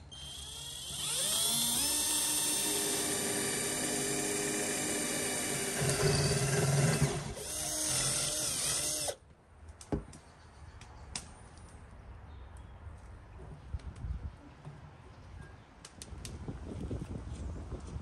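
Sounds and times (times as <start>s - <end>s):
drill motor whining: 0.0s - 9.2s.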